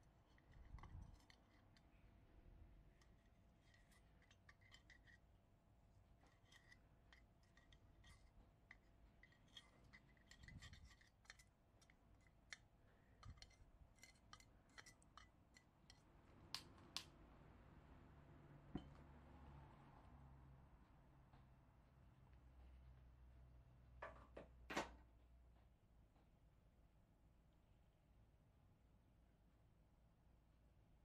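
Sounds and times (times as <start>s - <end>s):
metal tweezers clicking and scraping: 0.1s - 2.0s, 2.9s - 5.3s, 6.2s - 17.1s.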